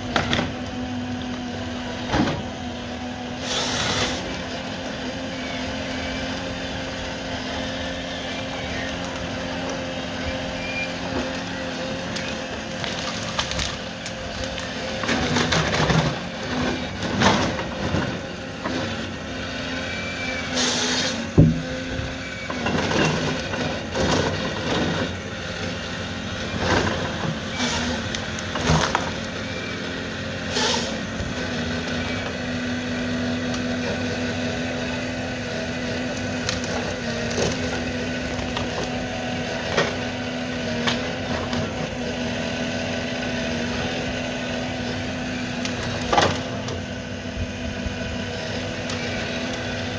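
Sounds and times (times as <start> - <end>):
diesel engine and hydraulics running: 0.0 - 49.9
wood cracking and snapping: 11.1 - 18.0, 36.0 - 39.0.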